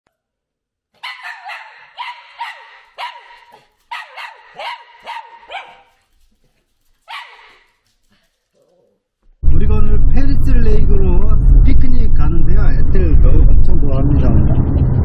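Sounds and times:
small dog barking: 1.0s - 6.1s, 7.0s - 7.8s.

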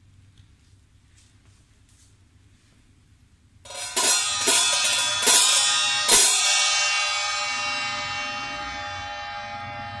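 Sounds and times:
hi-hat cymbal hits ringing: 3.7s - 10.0s.

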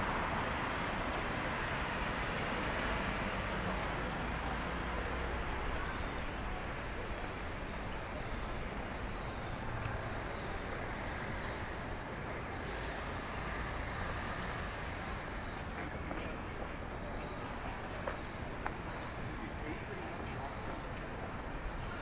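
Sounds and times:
traffic hum: 0.0s - 22.0s
insects chirping: 4.5s - 17.4s.

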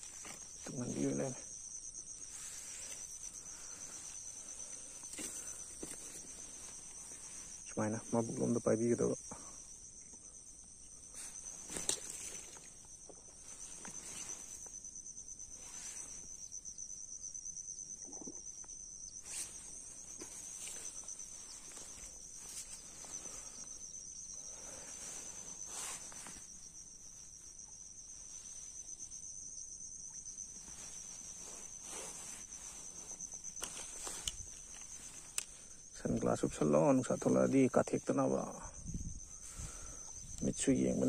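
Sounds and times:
insect chorus trilling: 0.0s - 41.0s
fishing tackle knocks and rustles: 11.6s - 14.0s.

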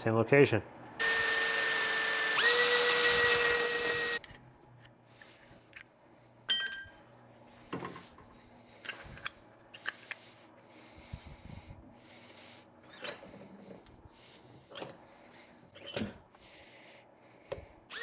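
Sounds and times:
power drill whining: 1.0s - 4.2s.

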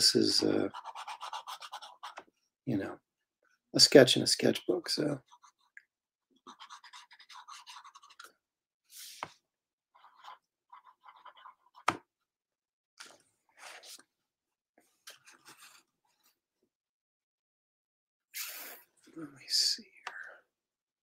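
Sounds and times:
pencil scratching on paper: 0.5s - 2.3s, 5.2s - 5.7s, 6.4s - 8.3s, 10.0s - 12.0s.

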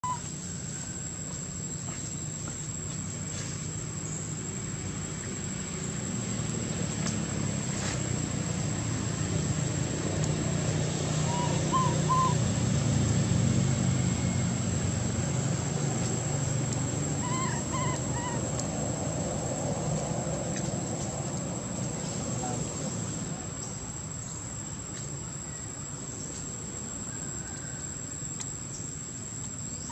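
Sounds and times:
outdoor background hum: 0.0s - 29.9s
short high animal calls: 17.2s - 18.4s.

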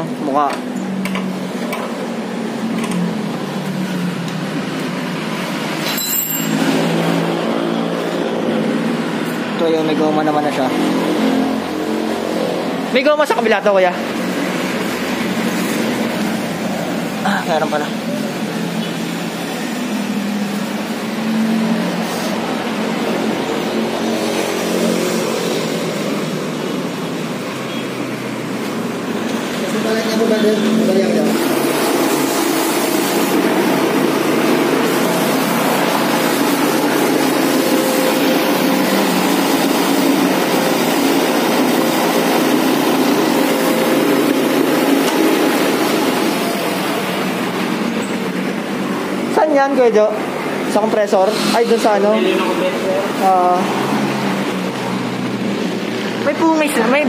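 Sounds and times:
high-pitched clink: 5.8s - 6.8s.

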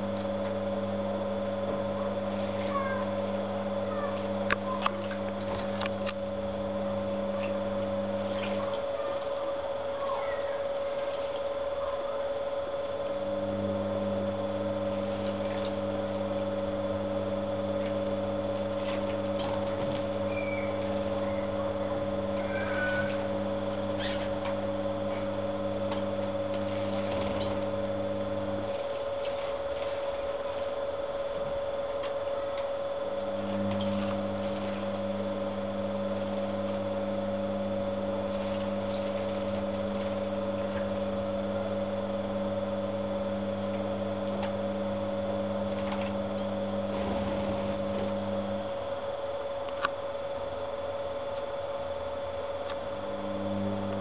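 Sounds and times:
small pump humming: 0.0s - 54.0s
faint high chirps: 20.3s - 23.3s.

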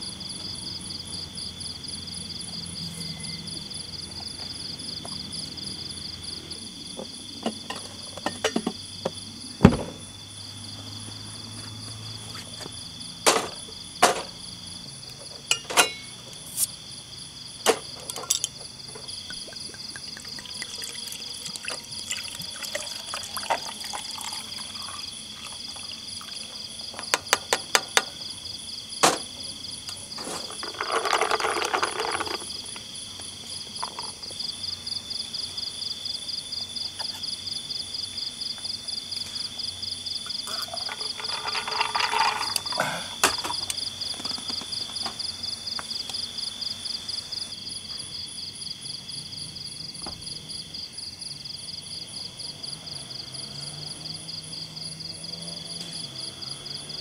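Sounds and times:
insect fast pulsing chirp: 0.0s - 7.4s
night insects trilling: 0.0s - 57.0s.

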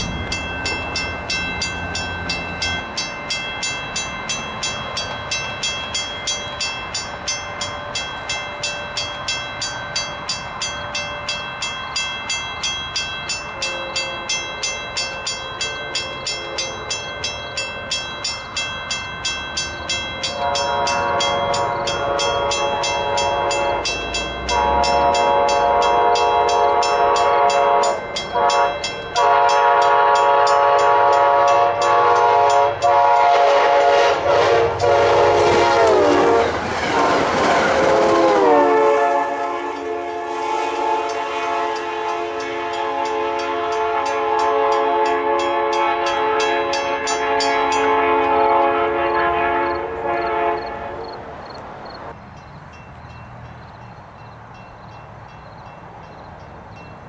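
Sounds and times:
train coaches clattering over rails: 0.0s - 57.0s
train air horn blasts: 16.0s - 17.0s, 20.2s - 51.2s.

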